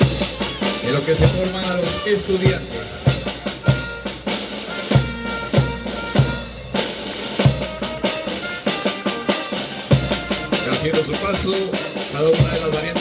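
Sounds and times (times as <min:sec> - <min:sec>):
bass drum beats: 0:00.0 - 0:09.1
snare drum strokes and rolls: 0:00.0 - 0:13.0.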